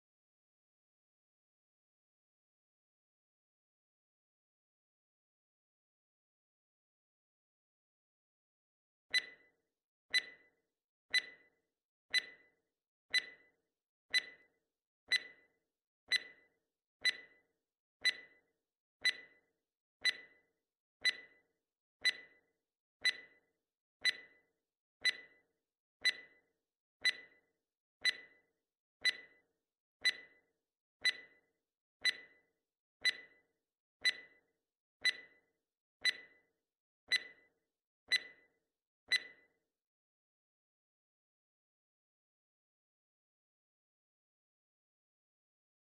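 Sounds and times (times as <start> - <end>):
clock-like timer ticking: 9.1 - 9.5, 10.1 - 10.5, 11.1 - 11.5, 12.1 - 12.5, 13.1 - 13.5, 14.1 - 14.5, 15.1 - 15.5, 16.1 - 16.4, 17.0 - 17.4, 18.0 - 18.4, 19.0 - 19.4, 20.0 - 20.4, 21.0 - 21.4, 22.0 - 22.4, 23.0 - 23.4, 24.0 - 24.4, 25.0 - 25.4, 26.0 - 26.4, 27.0 - 27.4, 28.0 - 28.4, 29.0 - 29.4, 30.0 - 30.4, 31.0 - 32.4, 33.0 - 33.4, 34.0 - 34.4, 35.0 - 35.4, 36.0 - 36.4, 37.1 - 37.4, 38.1 - 38.4, 39.1 - 39.4.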